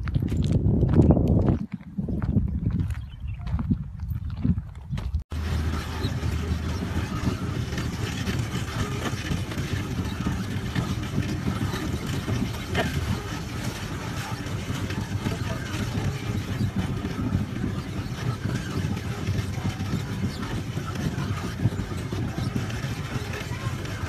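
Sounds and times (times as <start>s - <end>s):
boat engine humming: 5.3s - 24.0s.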